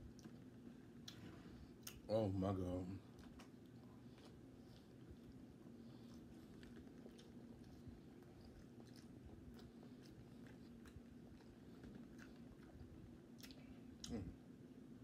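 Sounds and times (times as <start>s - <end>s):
steady low hum: 0.0s - 15.0s
mouth clicks and smacks chewing: 6.1s - 14.2s.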